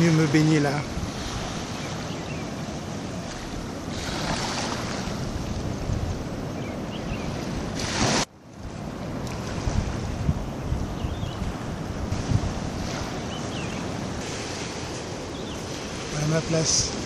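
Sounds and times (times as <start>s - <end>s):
small waves lapping: 0.0s - 17.0s
wind buffeting microphone: 0.0s - 17.0s.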